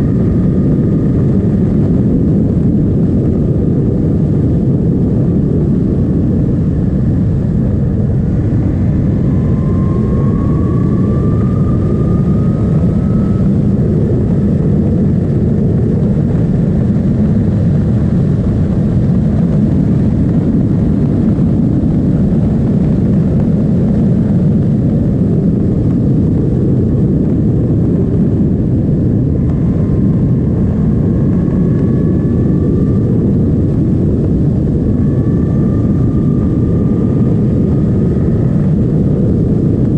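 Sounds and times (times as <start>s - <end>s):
heavy wind noise: 0.0s - 39.9s
motorcycle engine accelerating: 7.2s - 24.4s.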